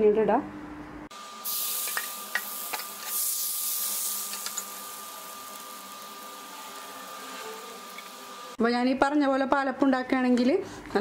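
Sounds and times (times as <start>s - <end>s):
batter sizzling in hot pan: 1.4s - 8.6s.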